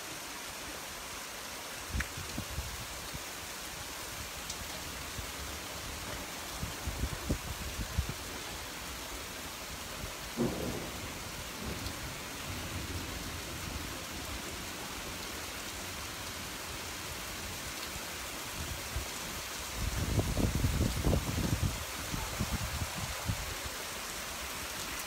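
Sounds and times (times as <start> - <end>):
heavy rain on pavement: 0.0 - 25.0
thunder rumbling: 10.3 - 14.0.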